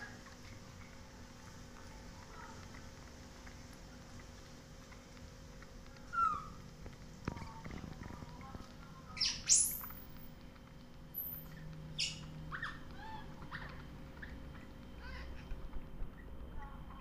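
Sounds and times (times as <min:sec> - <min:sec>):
baby monkey squeaks and chirps: 0:06.1 - 0:06.6, 0:09.2 - 0:10.0, 0:11.2 - 0:14.4.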